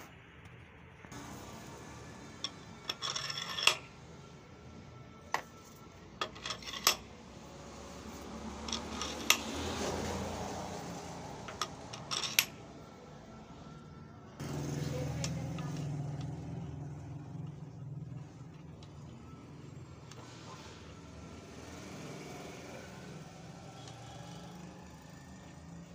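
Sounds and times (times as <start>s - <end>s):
steel collars clinking: 6.2s - 7.1s, 8.6s - 9.5s, 11.5s - 12.6s.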